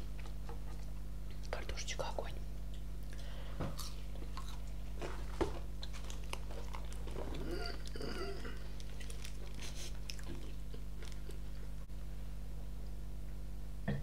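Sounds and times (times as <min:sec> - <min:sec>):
close chewing and crunching: 0:00.0 - 0:01.6, 0:02.7 - 0:11.9.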